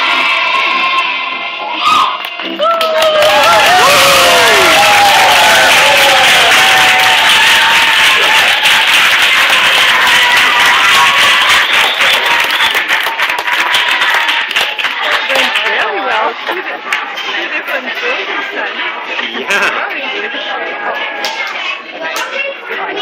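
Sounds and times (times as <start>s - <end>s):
children's choir singing: 0.0s - 1.8s
audience applause: 2.6s - 15.8s.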